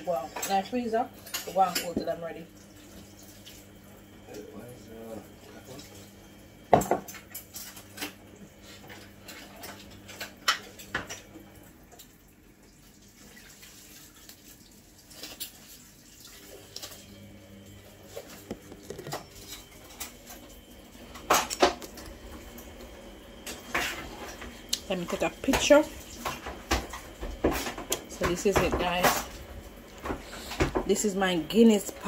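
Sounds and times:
kitchen utensils clattering: 23.5s - 29.4s.

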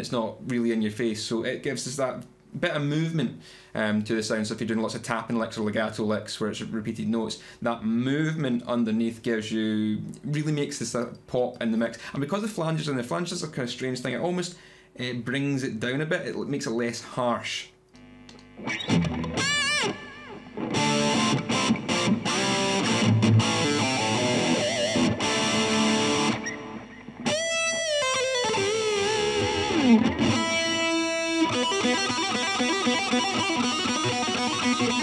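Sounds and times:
distorted electric guitar solo: 18.0s - 35.0s.

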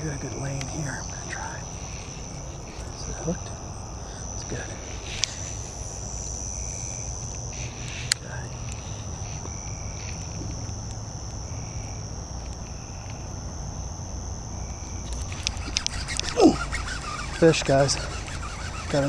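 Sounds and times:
crickets trilling: 0.0s - 19.0s
sharp click: 15.0s - 16.4s.

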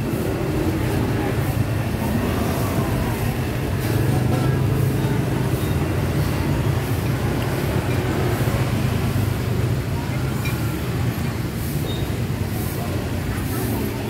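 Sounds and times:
indistinct voices: 0.0s - 14.0s
market background rumble: 0.0s - 14.0s.

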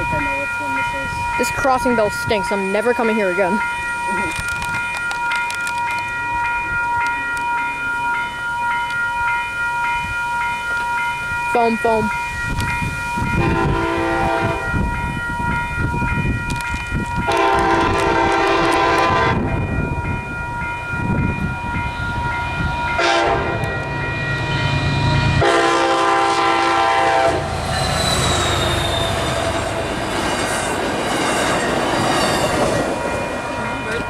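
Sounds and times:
train air horn blasts: 13.3s - 14.8s, 17.3s - 19.6s, 23.0s - 23.8s, 25.1s - 27.8s
high wavering wheel squeal: 27.5s - 33.4s
train wheels clattering on rails: 27.5s - 34.0s.

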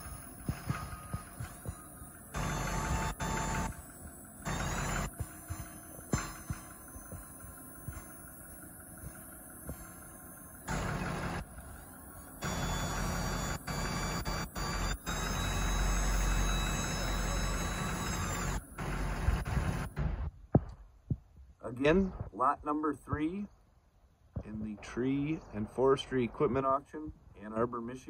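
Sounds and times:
hydraulic hoist whining: 0.0s - 20.3s
diesel engine idling: 0.0s - 20.7s.

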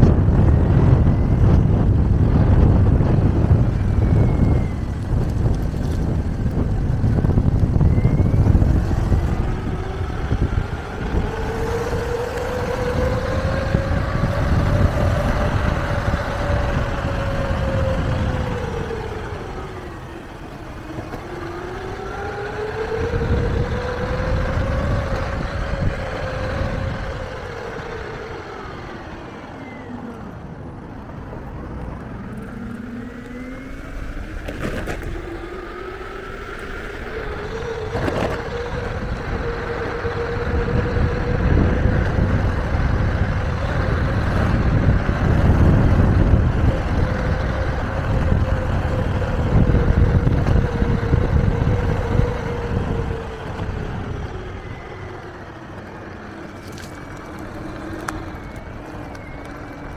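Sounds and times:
electric motor whining: 0.0s - 59.9s
tyres rumbling on asphalt: 0.0s - 59.9s.

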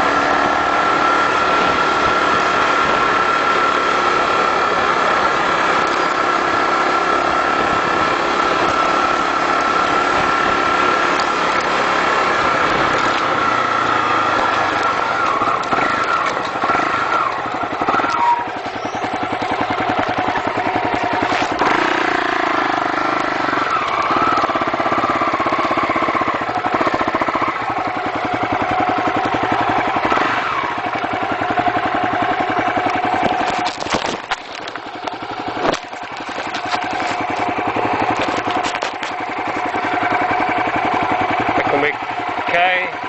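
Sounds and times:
motorcycle engine running: 0.0s - 43.0s
sharp knocks of bike jolting: 21.0s - 21.7s, 33.1s - 39.8s.

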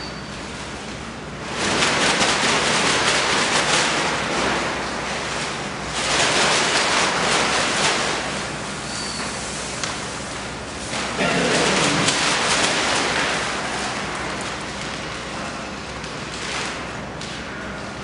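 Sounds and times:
plastic sack rustling: 10.3s - 15.6s.

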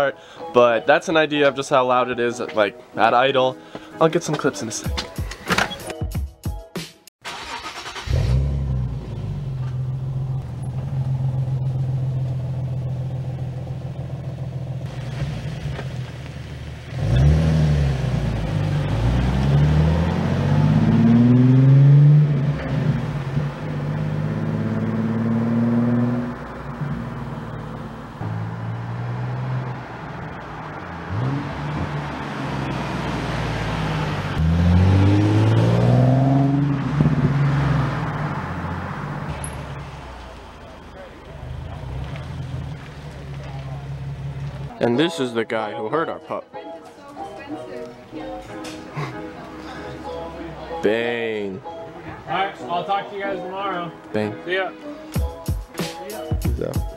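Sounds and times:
car engine revving and accelerating: 7.4s - 40.4s, 41.2s - 44.7s.

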